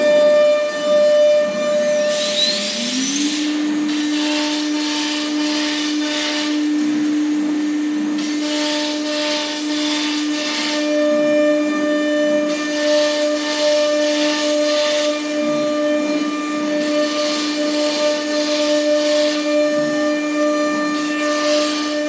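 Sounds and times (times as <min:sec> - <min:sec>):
router spindle whine: 0:00.0 - 0:22.0.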